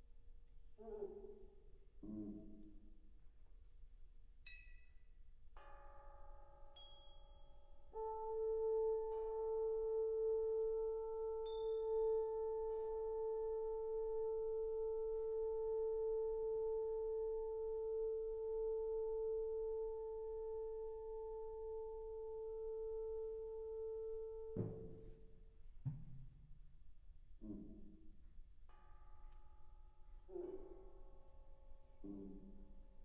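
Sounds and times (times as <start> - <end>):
loud steady held tone: 8.0 - 25.1.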